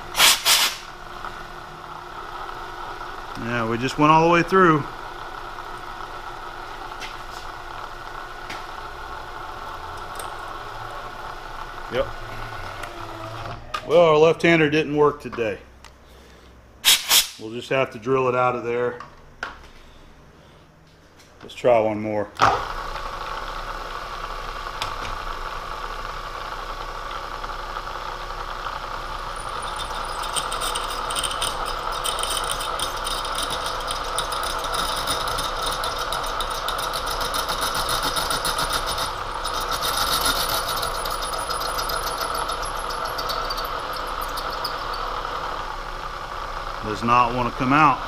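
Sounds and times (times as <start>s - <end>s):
milling machine motor hum: 0.9s - 13.6s, 22.6s - 46.9s
drill bit chattering in steel: 9.9s - 10.6s, 29.2s - 45.7s.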